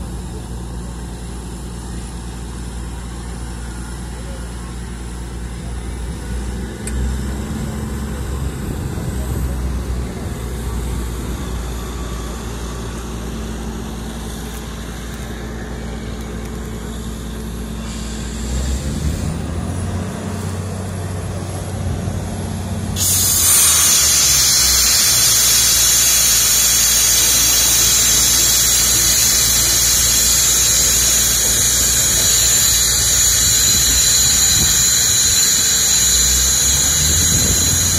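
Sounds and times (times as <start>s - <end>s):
heavy engine humming: 0.0s - 37.9s
loud steady hiss: 10.7s - 37.9s.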